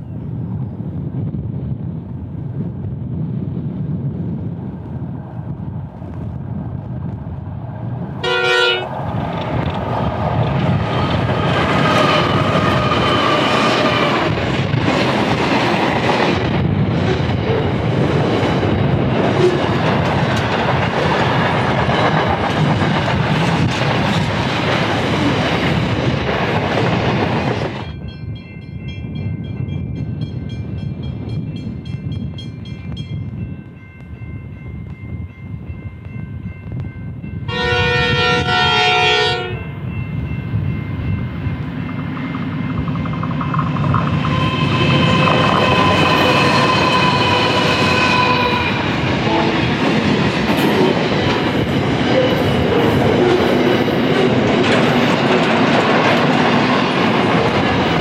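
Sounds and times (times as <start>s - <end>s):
freight train passing: 0.0s - 58.0s
locomotive horn blast: 8.2s - 8.9s, 37.5s - 39.7s.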